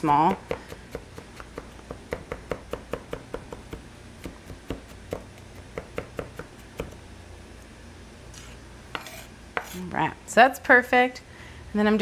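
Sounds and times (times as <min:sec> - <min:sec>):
knife chopping on wooden board: 0:00.0 - 0:07.0, 0:08.9 - 0:09.8
steady low hum: 0:00.0 - 0:12.0.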